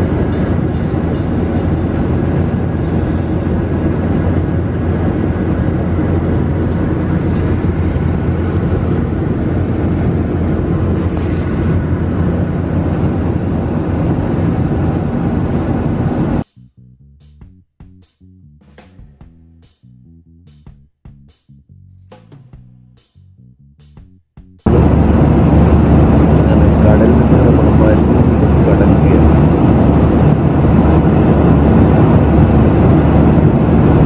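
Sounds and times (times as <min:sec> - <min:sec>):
jet airliner cabin noise: 0:00.0 - 0:16.4, 0:24.7 - 0:34.0.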